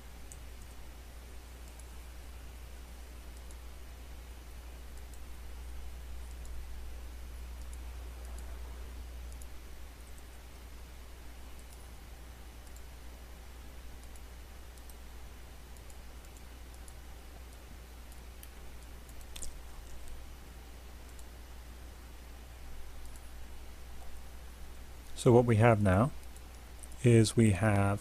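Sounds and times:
low hum: 0.0 - 28.0
computer mouse clicks: 0.2 - 0.8, 1.6 - 2.0, 3.3 - 3.6, 4.9 - 5.3, 6.2 - 6.6, 7.6 - 10.4, 11.5 - 11.9, 12.6 - 12.9, 14.0 - 15.0, 15.7 - 20.2, 21.0 - 21.3, 23.0 - 23.3.

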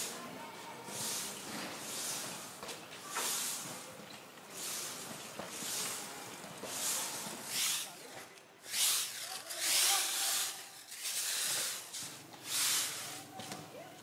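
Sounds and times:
stick broom sweeping concrete: 0.0 - 13.6.

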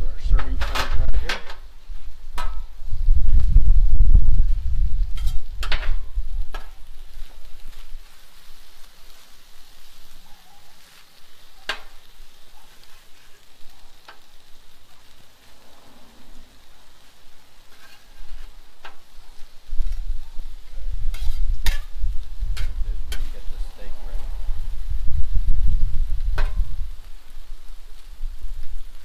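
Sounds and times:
food sizzling on a griddle: 0.0 - 29.0
metal spatula scraping griddle: 5.0 - 10.2, 10.8 - 25.0.

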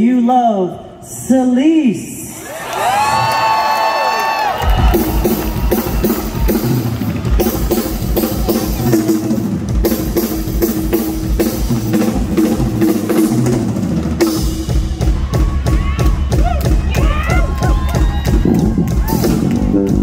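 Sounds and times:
live rock band: 4.5 - 20.0
drum kit kick and snare: 4.6 - 20.0.

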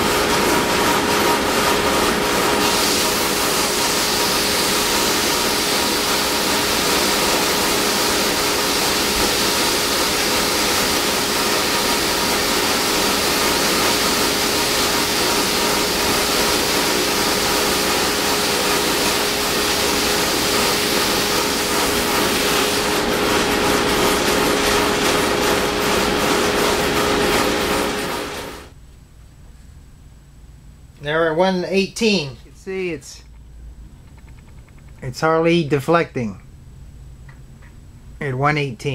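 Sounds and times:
drum sander motor hum: 0.0 - 28.8
sanding hiss: 2.6 - 28.6.

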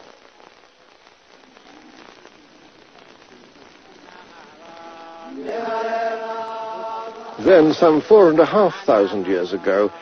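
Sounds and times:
faint crackling hiss: 0.0 - 10.0
voices chanting: 2.0 - 10.0.

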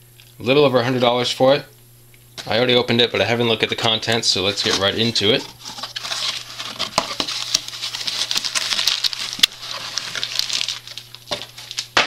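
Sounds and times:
plastic bags rustling and crinkling: 4.4 - 12.0.

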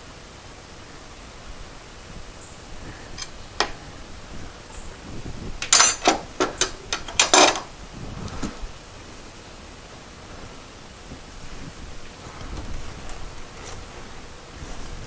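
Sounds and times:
metal tools clinking and rattling: 3.2 - 3.8, 5.6 - 7.7.

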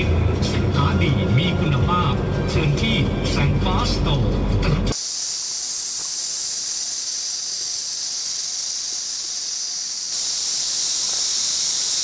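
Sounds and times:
insects droning: 4.9 - 12.0.

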